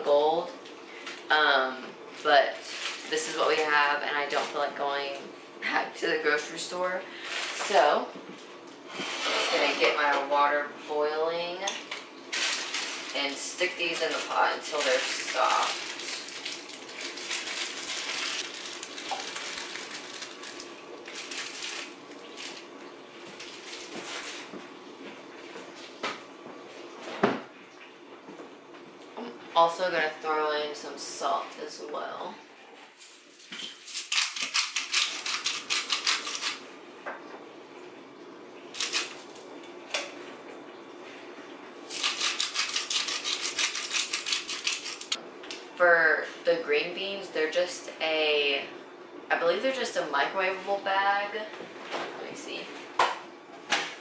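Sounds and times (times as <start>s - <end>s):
plastic bag crinkling: 2.5s - 3.4s, 12.3s - 22.8s, 23.4s - 24.5s, 41.9s - 45.2s.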